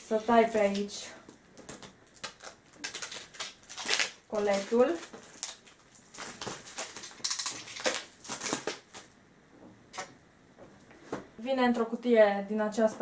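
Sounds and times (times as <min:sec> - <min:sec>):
cardboard tearing rip: 0:02.1 - 0:09.0.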